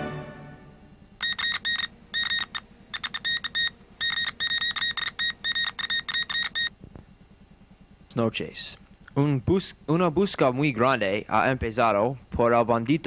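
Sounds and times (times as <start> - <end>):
high electronic beeps: 1.2 - 6.7.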